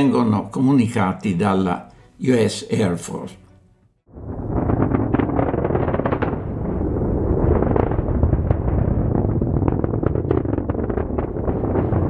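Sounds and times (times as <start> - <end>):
rocket engines rumbling and crackling: 4.2 - 12.0.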